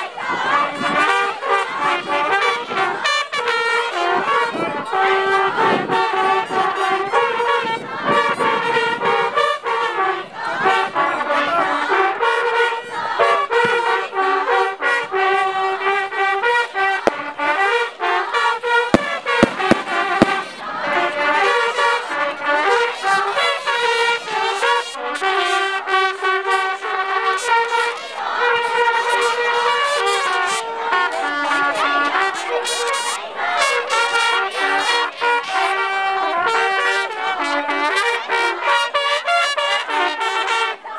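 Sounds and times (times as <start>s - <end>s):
trumpets playing a fanfare: 0.0s - 40.9s
sharp cracks: 17.1s - 17.3s, 19.0s - 20.8s.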